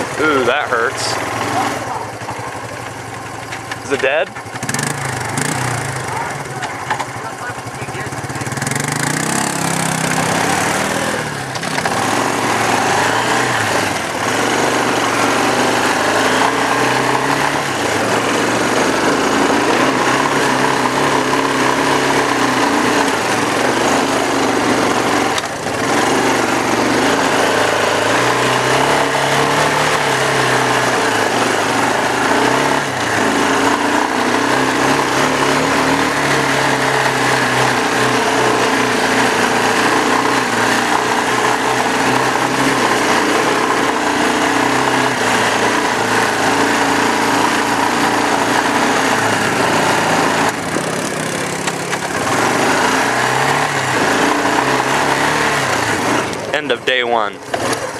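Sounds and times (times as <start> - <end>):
atv engine accelerating: 0.0 - 57.9.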